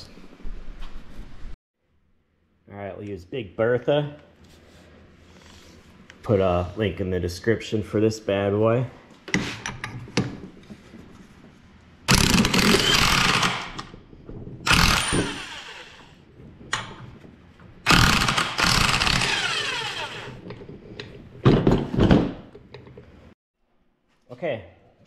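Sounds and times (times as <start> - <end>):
impact wrench hammering: 14.7 - 16.1, 17.9 - 20.4.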